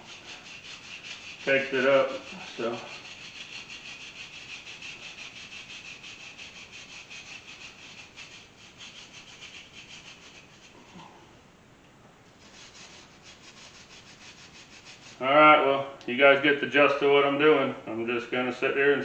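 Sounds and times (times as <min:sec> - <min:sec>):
wire brush scrubbing metal: 0:00.0 - 0:11.1, 0:12.4 - 0:15.3.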